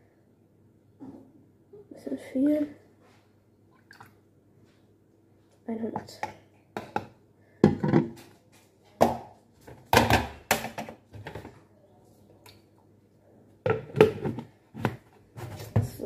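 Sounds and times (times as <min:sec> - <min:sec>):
plastic kitchenware clattering: 0:06.0 - 0:08.3, 0:09.0 - 0:11.6, 0:13.7 - 0:16.0.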